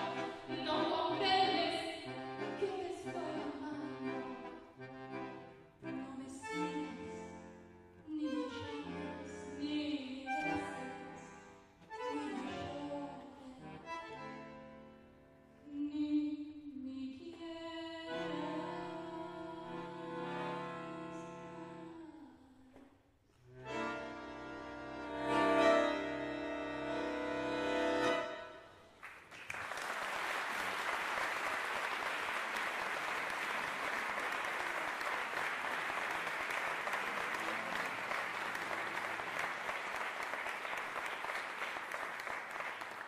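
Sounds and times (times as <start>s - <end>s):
audience applauding: 29.0s - 43.0s.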